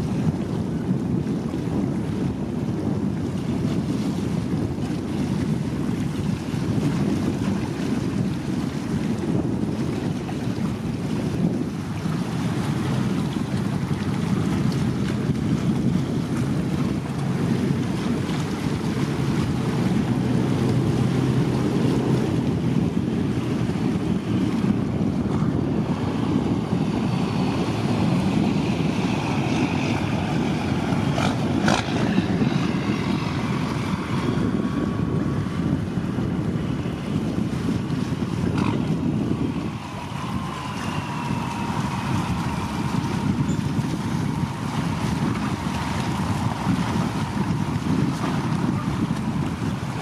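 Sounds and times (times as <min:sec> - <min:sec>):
wind buffeting microphone: 0:00.0 - 0:50.0
water washing against rocks: 0:39.6 - 0:50.0.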